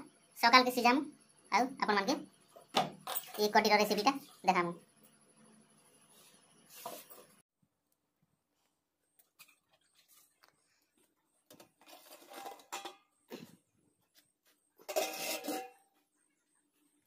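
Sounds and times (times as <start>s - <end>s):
metallic scraping and clinking: 11.8s - 13.2s, 14.8s - 16.1s.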